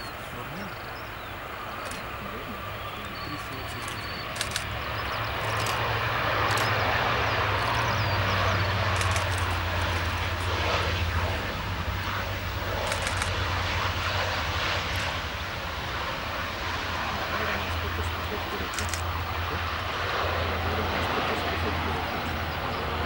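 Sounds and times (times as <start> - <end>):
turboprop engines roaring: 0.0 - 23.0.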